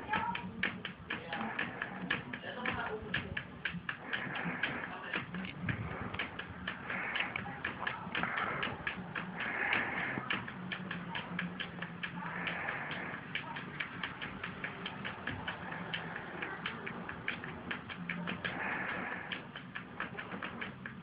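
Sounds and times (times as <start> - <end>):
cat claws tapping on laptop screen: 0.0 - 21.0.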